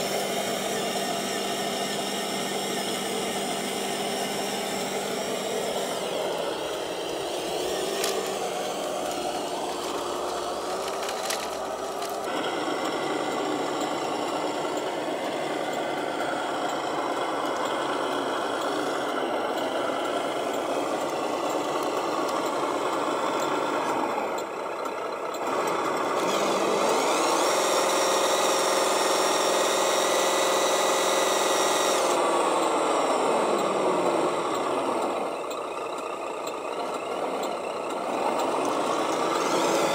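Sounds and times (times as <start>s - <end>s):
toy truck motor whining: 0.0s - 39.9s
sharp clicks: 4.7s - 16.0s.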